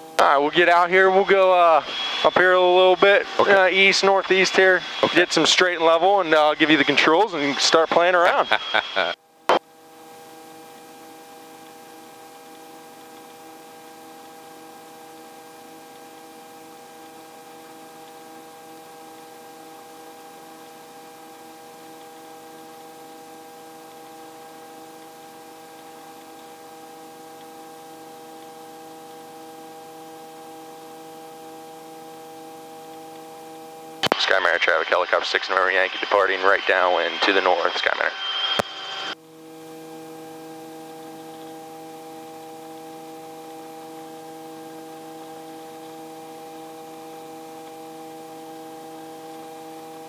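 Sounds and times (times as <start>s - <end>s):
helicopter hum through headset: 0.2s - 9.2s, 34.2s - 41.9s.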